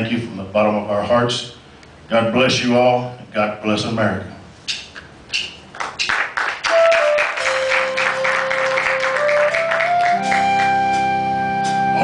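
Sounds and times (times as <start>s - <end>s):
audience applause: 5.8s - 10.9s
keyboard long held notes: 6.6s - 12.0s.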